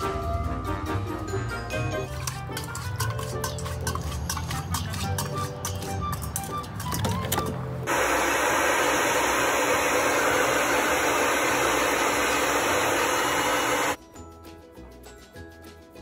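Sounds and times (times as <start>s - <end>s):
background music: 0.0s - 7.9s, 13.8s - 16.0s
hair dryer blowing: 7.9s - 14.0s.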